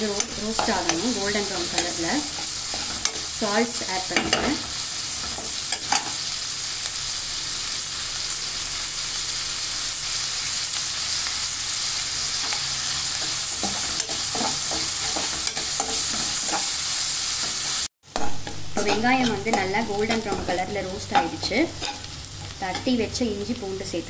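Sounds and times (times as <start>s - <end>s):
spoon scraping a pan: 0.0s - 6.3s, 12.4s - 23.0s
onions sizzling in hot oil: 0.0s - 24.0s.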